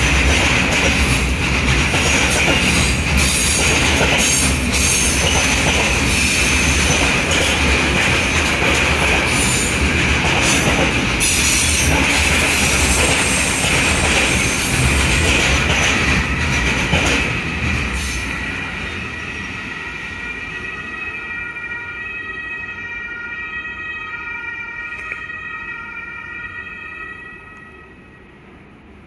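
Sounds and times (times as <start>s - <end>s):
freight train wagons rolling: 0.0s - 19.7s.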